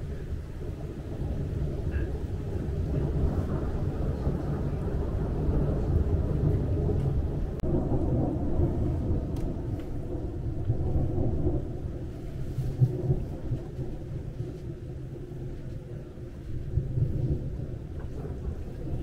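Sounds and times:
rain ticking on window glass: 0.0 - 19.0
thunder rumbling: 0.0 - 19.0.

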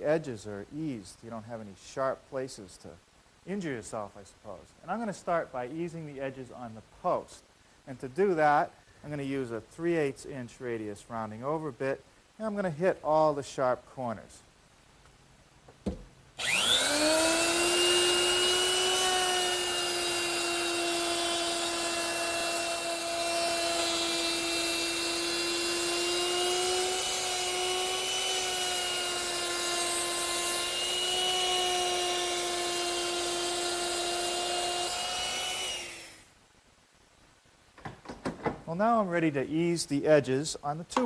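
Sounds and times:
router whining while cutting wood: 16.4 - 36.2.

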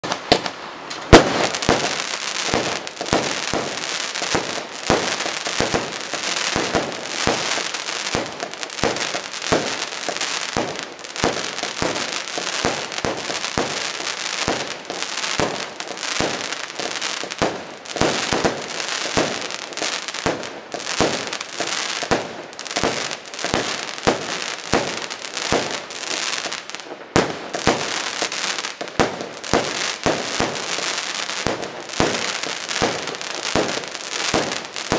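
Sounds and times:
firework cake popping rapidly: 0.0 - 15.6.

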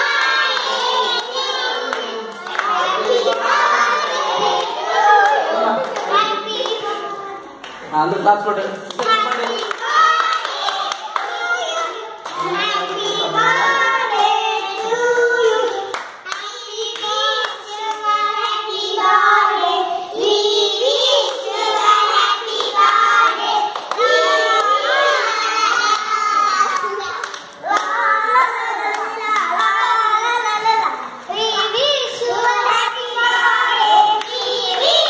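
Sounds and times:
children singing in unison: 0.0 - 7.6, 9.7 - 35.0
hand claps: 14.1 - 18.6, 25.6 - 29.8.

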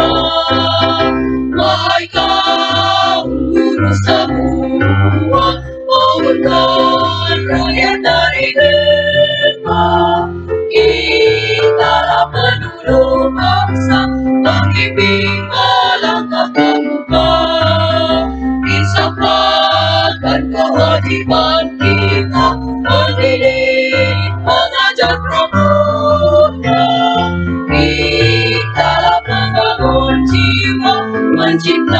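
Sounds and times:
choir singing: 0.0 - 31.9
instrumental accompaniment: 0.0 - 31.9
steady bass line: 0.0 - 31.9.

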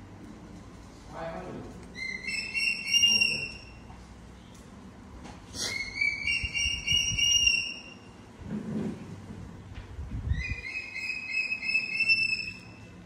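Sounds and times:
baby monkey high-pitched whining call: 5.6 - 8.1, 10.3 - 12.8.

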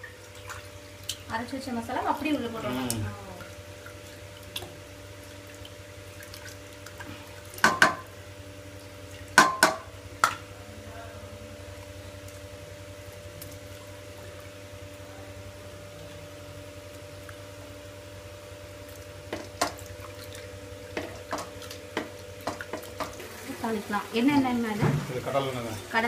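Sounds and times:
bowl clanking against metal pot: 7.6 - 8.1, 9.4 - 10.5
liquid sloshing in pot: 18.8 - 26.0.

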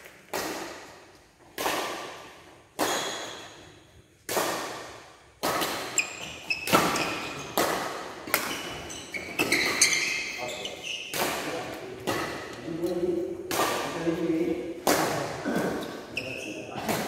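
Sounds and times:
rackets striking shuttlecock: 0.0 - 10.4, 11.0 - 16.1
sneakers squeaking on floor: 1.6 - 4.0, 5.4 - 12.9, 15.4 - 17.0.

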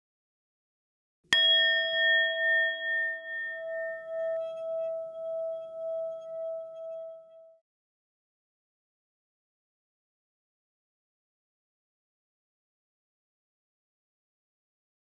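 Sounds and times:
struck metal tone ringing: 1.4 - 7.6.

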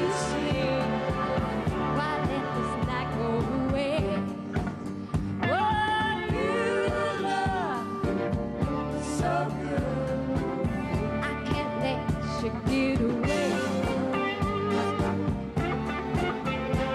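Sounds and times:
woman singing into microphone: 0.0 - 4.3, 5.4 - 8.1, 11.2 - 14.8
band with steady drum beat: 0.0 - 16.9.

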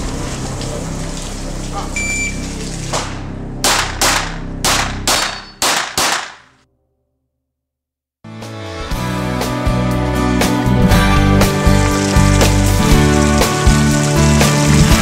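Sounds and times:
background music: 0.0 - 6.1, 8.3 - 15.0
pistol shots: 3.6 - 6.5.

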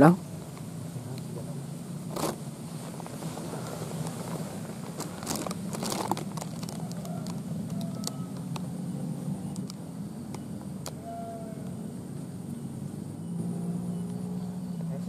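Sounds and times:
crackling and rustling: 0.3 - 11.0.

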